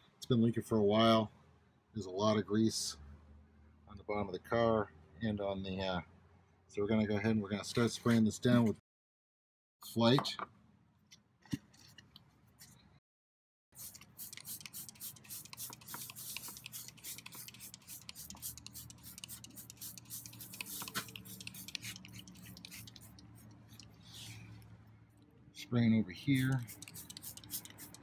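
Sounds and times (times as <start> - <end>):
spray bottle spritzing: 13.8 - 24.4, 26.3 - 28.0.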